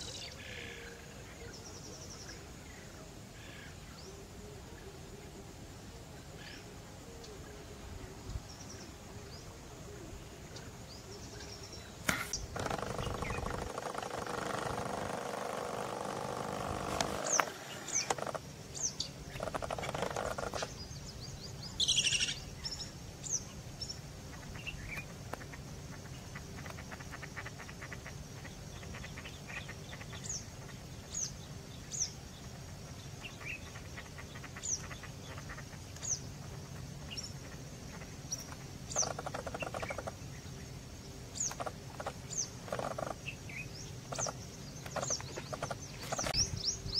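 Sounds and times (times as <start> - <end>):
birds chirping: 6.4 - 46.9.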